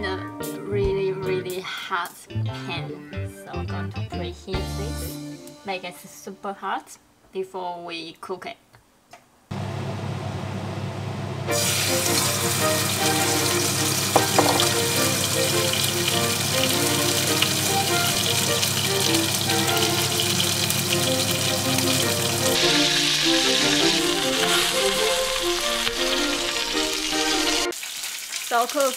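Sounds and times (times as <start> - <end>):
light background music: 0.0 - 7.0, 11.5 - 27.7
meat sizzling in frying pan: 11.5 - 28.9.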